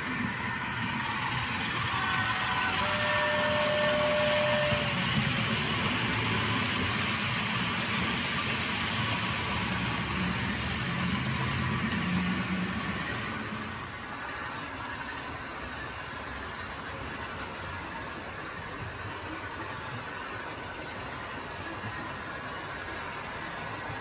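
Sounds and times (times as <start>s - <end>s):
high whine: 0.0s - 7.0s
model train wheels rattling: 0.0s - 14.0s
model train diesel engine sound: 0.0s - 24.0s.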